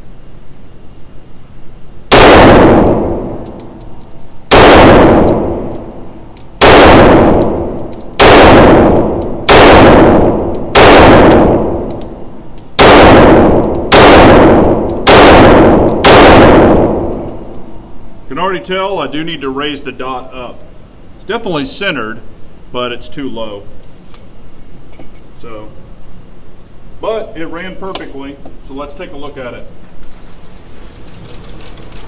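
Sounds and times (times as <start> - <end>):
pistol shots indoors: 2.1 - 17.7.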